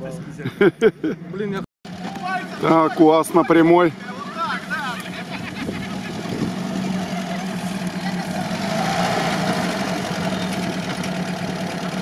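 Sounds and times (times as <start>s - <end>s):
off-road vehicle engine at low revs: 0.0s - 12.0s.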